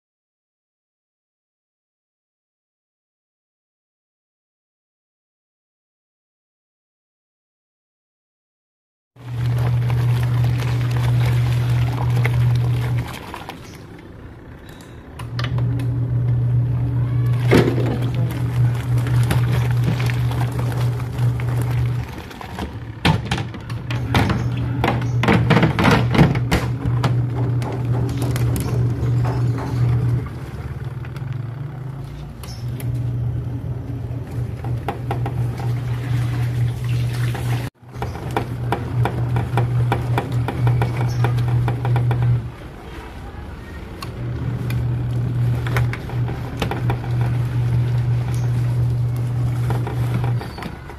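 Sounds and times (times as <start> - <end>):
water sloshing: 9.2 - 14.2, 17.2 - 31.3, 33.8 - 50.9
washing machine motor humming: 9.2 - 50.9.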